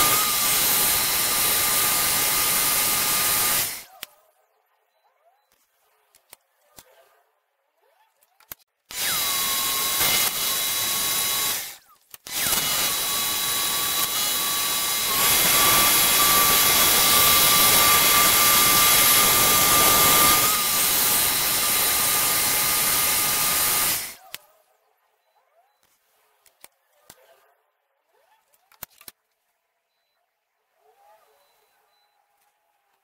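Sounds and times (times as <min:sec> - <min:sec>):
jigsaw blade cutting wood: 0:00.0 - 0:04.0, 0:08.4 - 0:24.4
jigsaw whining: 0:00.0 - 0:04.0, 0:08.9 - 0:24.4.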